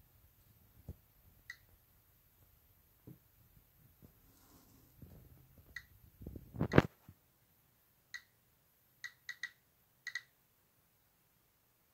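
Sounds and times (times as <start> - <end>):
geiger counter clicks: 9.0 - 10.3.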